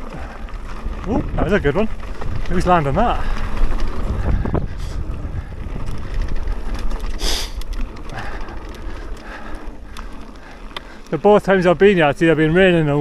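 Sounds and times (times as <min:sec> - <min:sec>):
wind rushing over microphone: 0:00.0 - 0:10.0
bike rattles and clicks: 0:00.0 - 0:13.0
tyres rumbling on dirt: 0:00.0 - 0:13.0.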